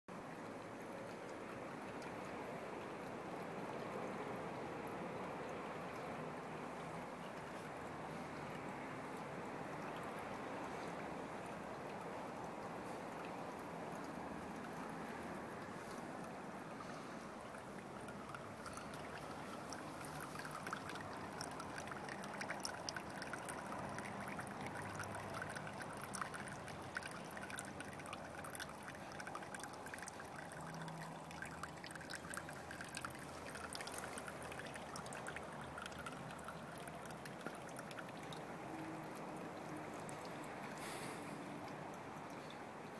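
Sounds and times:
water trickling into pond: 0:00.1 - 0:42.9
water drops pattering: 0:04.8 - 0:41.0.

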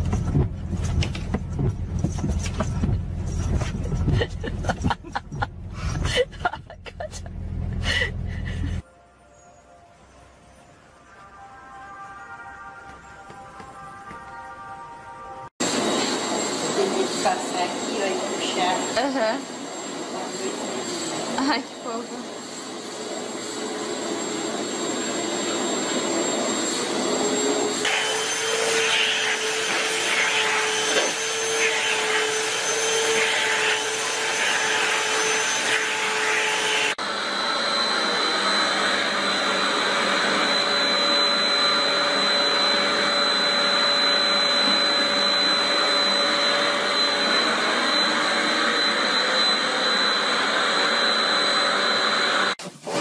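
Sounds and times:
vacuum cleaner motor: 0:15.6 - 0:53.0
high steady whine: 0:37.0 - 0:52.6.

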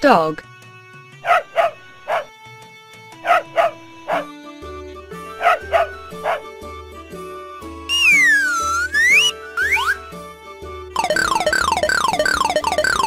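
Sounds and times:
light background music: 0:00.0 - 0:13.0
dog barking: 0:01.2 - 0:02.3, 0:03.2 - 0:04.3, 0:05.4 - 0:06.5.

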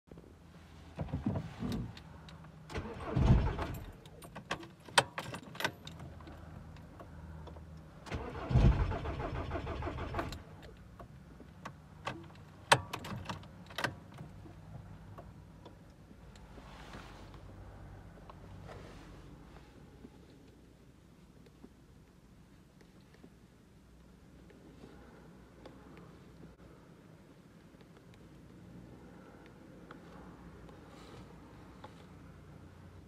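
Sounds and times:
diesel engine cranking and starting: 0:02.6 - 0:04.2, 0:08.0 - 0:10.6.

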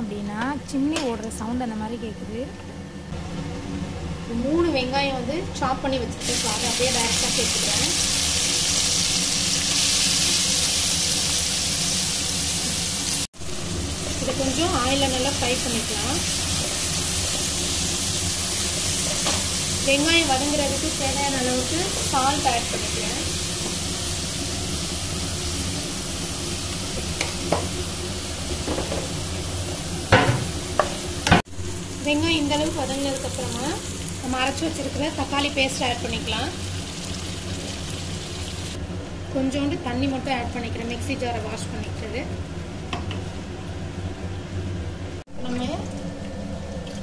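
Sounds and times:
range hood fan hum: 0:00.0 - 0:47.0
onions sizzling in hot oil: 0:05.8 - 0:38.8.

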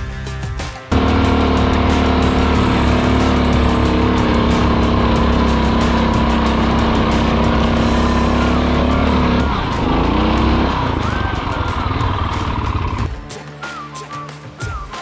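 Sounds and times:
background music with whistled tune: 0:00.0 - 0:00.9, 0:01.8 - 0:15.0
single-cylinder engine running: 0:00.9 - 0:13.1.

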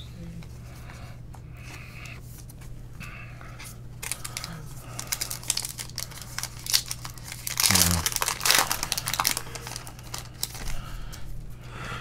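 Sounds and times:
foil wrapper crinkling and tearing: 0:04.0 - 0:10.8.

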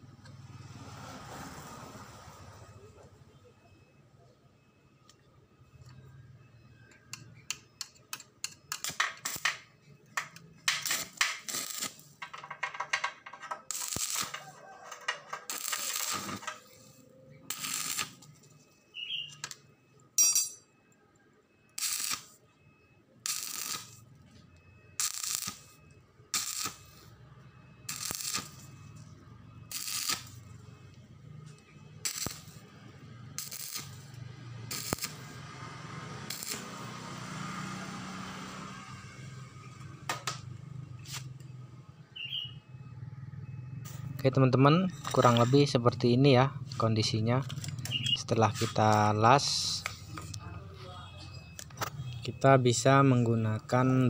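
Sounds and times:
arc welder crackling: 0:07.1 - 0:19.6, 0:21.8 - 0:22.4, 0:23.2 - 0:24.1, 0:24.9 - 0:27.2, 0:27.8 - 0:38.7.

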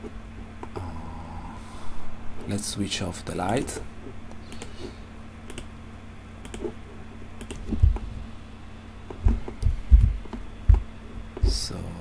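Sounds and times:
faint steady hum: 0:00.0 - 0:12.0
computer mouse and keyboard clicks: 0:04.5 - 0:04.8, 0:05.5 - 0:05.7, 0:06.4 - 0:06.8, 0:07.4 - 0:08.0
dull low thumps: 0:07.7 - 0:08.3, 0:09.1 - 0:11.6.

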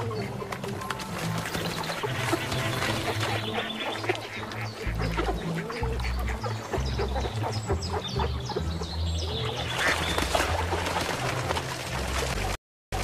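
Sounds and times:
ducks quacking: 0:00.0 - 0:13.0.

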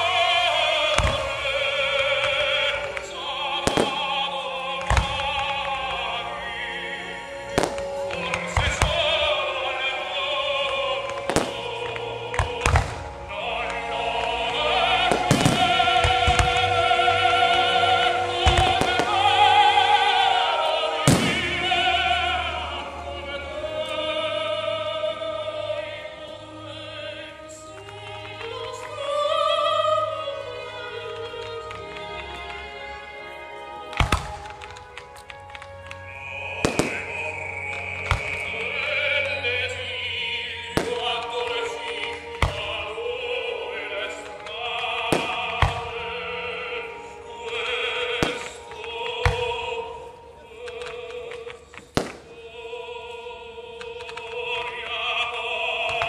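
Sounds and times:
fireworks bursting: 0:00.0 - 0:06.0, 0:07.4 - 0:22.9, 0:33.8 - 0:52.7
operatic singing: 0:00.0 - 0:56.0
orchestral music: 0:00.0 - 0:56.0.

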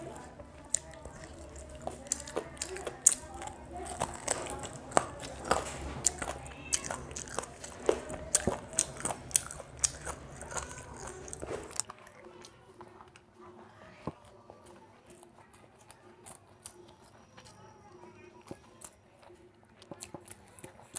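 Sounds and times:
person chewing and smacking: 0:00.0 - 0:13.3, 0:14.0 - 0:20.9.

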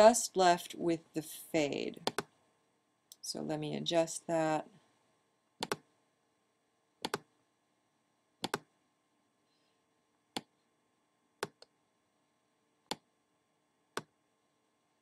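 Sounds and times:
computer mouse clicks: 0:02.0 - 0:02.4, 0:05.6 - 0:05.9, 0:07.0 - 0:07.3, 0:08.4 - 0:08.7, 0:10.3 - 0:10.6, 0:11.4 - 0:11.8, 0:12.8 - 0:13.1.

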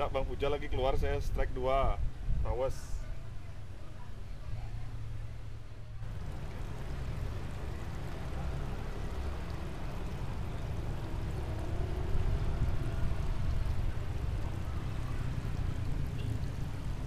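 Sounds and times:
canal water rushing: 0:06.0 - 0:17.0.

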